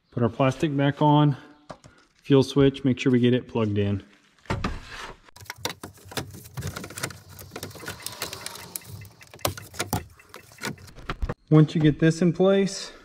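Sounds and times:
plastic clicks and rattles: 5.4s - 11.3s.

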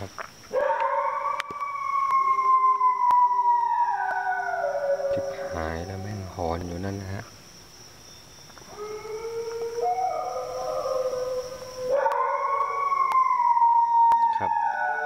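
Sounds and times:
loud high howl: 0.5s - 6.4s, 8.7s - 15.0s
dogs howling: 0.5s - 6.5s, 8.7s - 15.0s.

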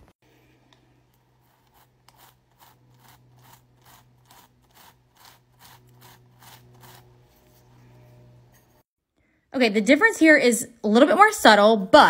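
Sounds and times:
toothbrush scrubbing earring: 1.1s - 7.8s.

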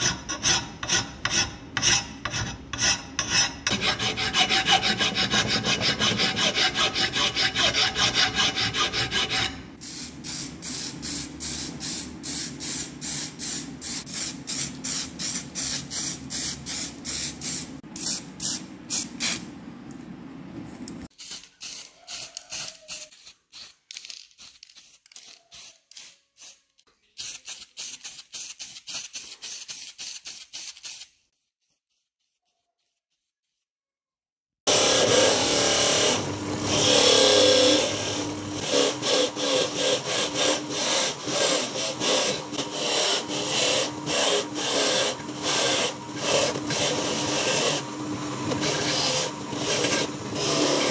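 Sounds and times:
hand scrubbing metal: 0.0s - 9.6s.

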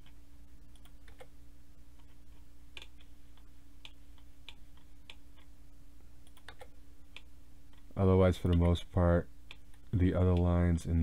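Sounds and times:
low steady hum: 0.0s - 11.0s
mouse and keyboard clicks: 6.3s - 7.9s.

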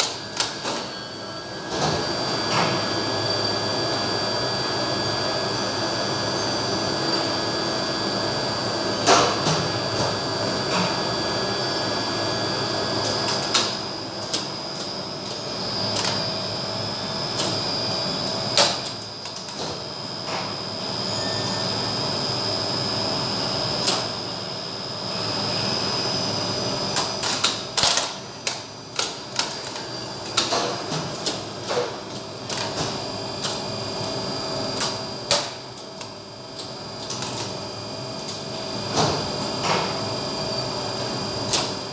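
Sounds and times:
machine room hum: 0.0s - 41.9s.

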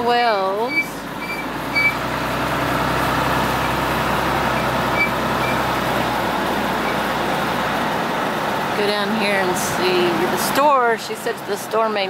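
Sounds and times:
road and engine noise: 0.0s - 12.0s.

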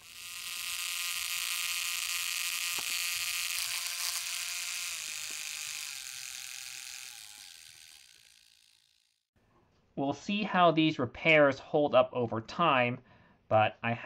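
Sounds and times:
electric motor whining with gear noise: 0.0s - 9.2s.

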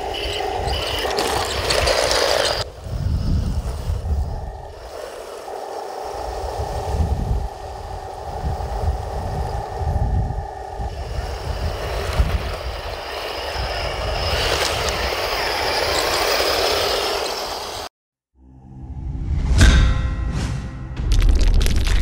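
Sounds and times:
wind rumble on microphone: 0.0s - 16.2s
toy tank motor whine: 0.0s - 17.9s
tracks hissing over dirt: 0.0s - 17.9s.

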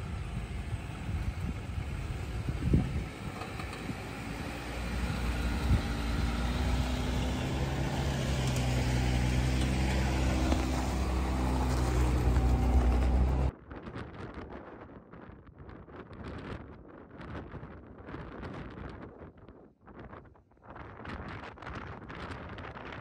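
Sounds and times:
off-road vehicle engine under load: 0.0s - 13.5s
wind noise on microphone: 0.0s - 23.0s.

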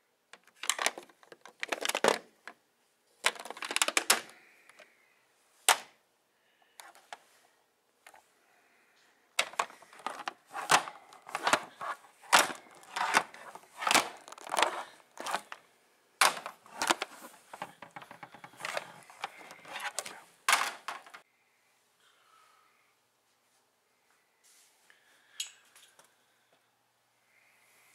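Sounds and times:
plastic figures clacking: 0.4s - 2.6s, 3.2s - 4.9s, 9.4s - 15.6s, 16.2s - 21.2s.

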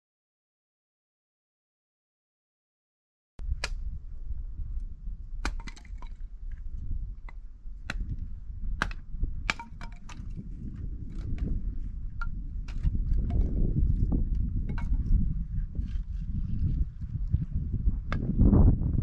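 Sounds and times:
wind rumble on microphone: 3.4s - 19.0s
dry sticks snapping: 3.6s - 3.9s, 5.4s - 6.6s, 7.2s - 8.2s, 8.8s - 11.6s, 12.2s - 13.5s.

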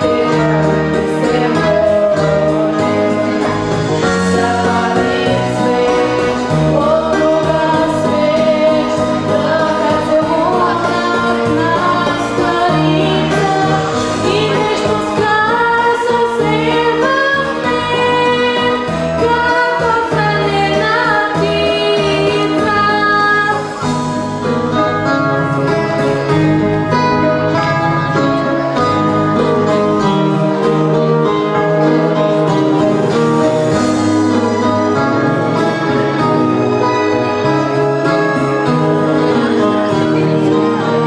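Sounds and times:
girl singing into microphone: 0.0s - 24.0s
instrumental accompaniment with bass: 0.0s - 41.0s.

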